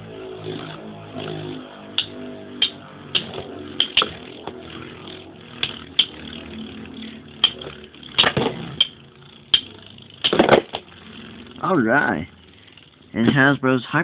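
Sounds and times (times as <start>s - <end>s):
spinning tops whirring: 0.0s - 14.0s
spinning tops clacking: 1.2s - 11.6s.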